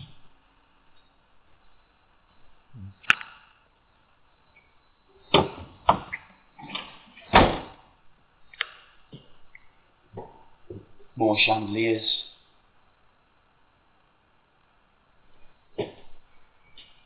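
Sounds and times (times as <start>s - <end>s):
knocks and thumps: 10.1s - 11.1s.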